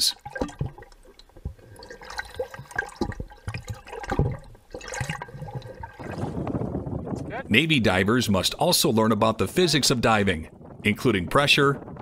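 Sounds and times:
water bubbling and sloshing: 0:00.0 - 0:07.2.

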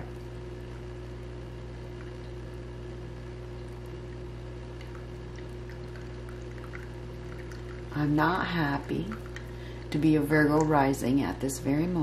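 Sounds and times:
low hum: 0:00.0 - 0:12.0
water trickling in fountain: 0:03.6 - 0:11.0
faint water drips: 0:03.6 - 0:11.1.

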